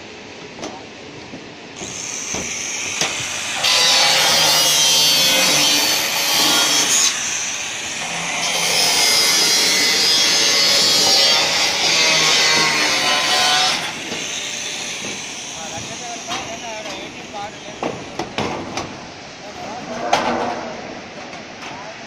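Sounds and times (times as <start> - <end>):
electric saw cutting roof sheeting: 1.8 - 17.0.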